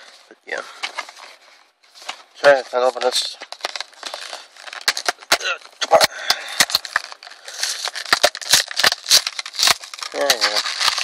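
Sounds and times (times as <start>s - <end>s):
plastic blister pack crackling: 2.4s - 11.0s.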